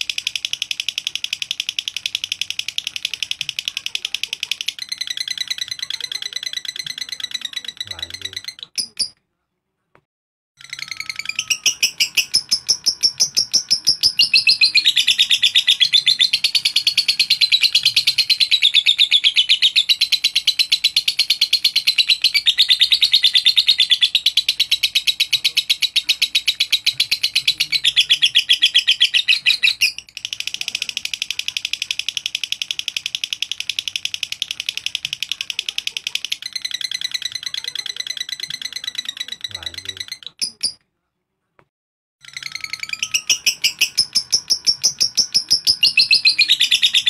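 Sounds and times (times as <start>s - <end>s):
lovebird fast high trill: 42.2s - 47.0s.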